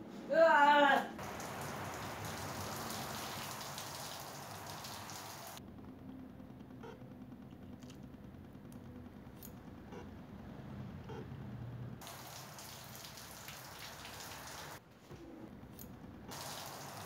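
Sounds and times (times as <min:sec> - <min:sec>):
shower water spraying: 0:01.2 - 0:05.6, 0:12.0 - 0:14.8, 0:16.3 - 0:17.0.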